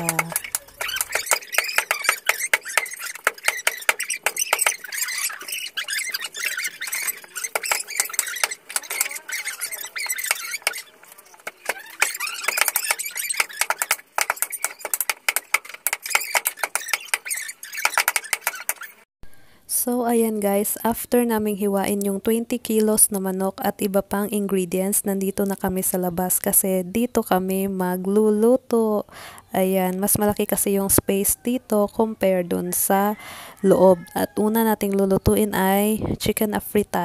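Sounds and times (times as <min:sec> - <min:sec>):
sped-up squeaky chatter: 0:00.0 - 0:19.0.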